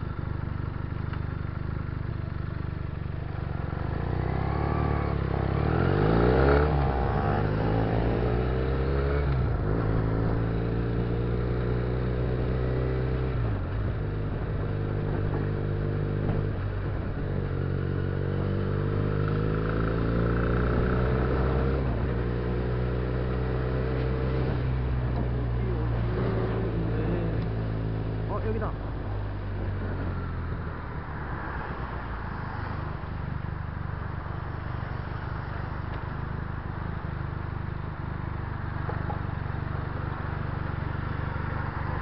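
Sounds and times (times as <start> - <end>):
motorcycle engine revving: 1.4 - 31.6.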